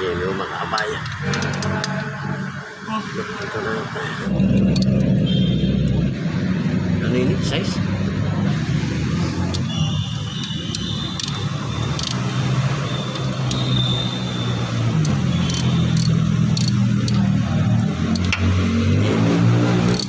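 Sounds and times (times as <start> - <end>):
car engine idling: 0.0 - 18.6
sharp clicks: 10.4 - 12.5, 13.1 - 14.0, 14.9 - 18.5.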